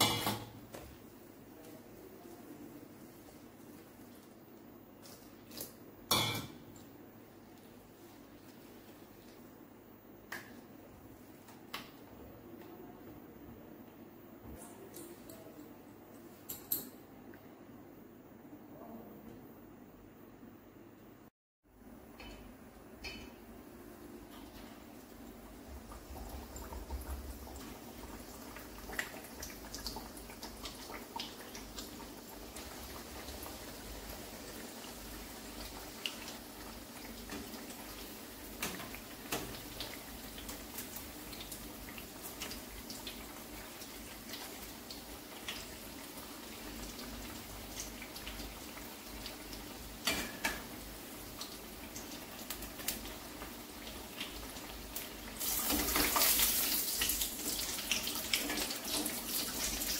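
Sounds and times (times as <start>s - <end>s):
oil sizzling and crackling: 24.1s - 59.9s.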